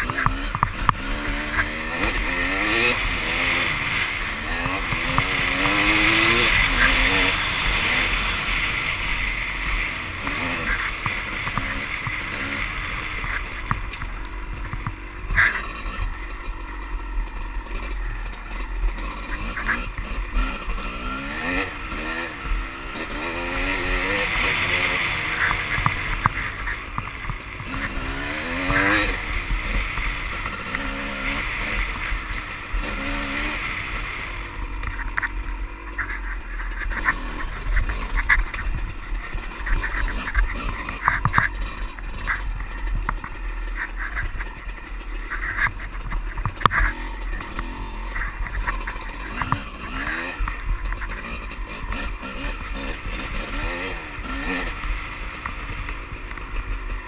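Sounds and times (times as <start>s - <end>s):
dirt bike engine revving: 0.0s - 57.0s
wheels knocking on rocks: 23.0s - 57.0s.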